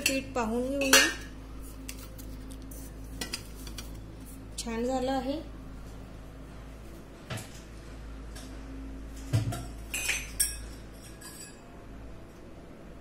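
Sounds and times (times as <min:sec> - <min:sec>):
steel kitchenware clinking: 0:00.0 - 0:01.3, 0:09.5 - 0:11.7
low steady hum: 0:00.0 - 0:13.0.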